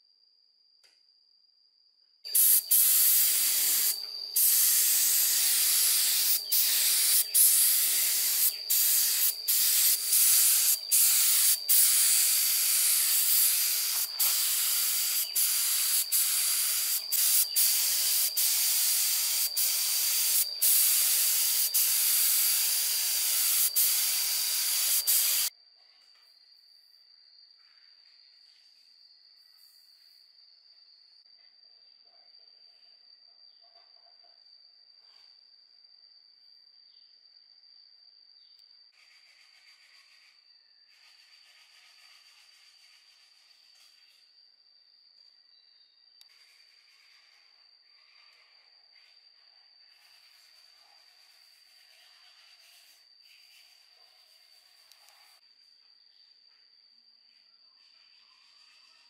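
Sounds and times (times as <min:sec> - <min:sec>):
loud spraying hiss: 0:02.3 - 0:25.5.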